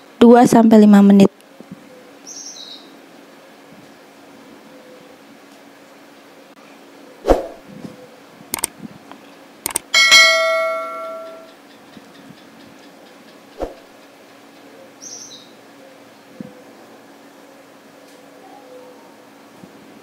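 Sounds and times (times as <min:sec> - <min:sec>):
bell chime: 0:10.0 - 0:11.5.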